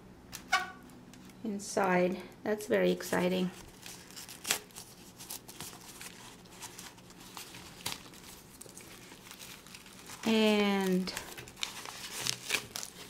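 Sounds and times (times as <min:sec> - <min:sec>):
newspaper rustling and crinkling: 0:03.4 - 0:13.0
sharp paper crackles: 0:03.5 - 0:13.0.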